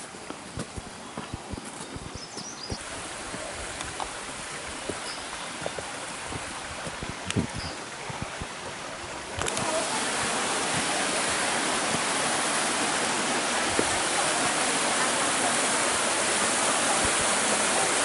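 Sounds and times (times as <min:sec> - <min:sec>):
waterfall rushing over rocks: 0:00.0 - 0:18.0.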